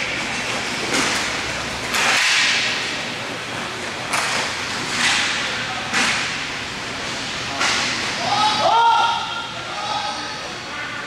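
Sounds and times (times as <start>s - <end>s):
sticks and puck slapping floor: 0.2s - 3.0s, 4.0s - 6.4s.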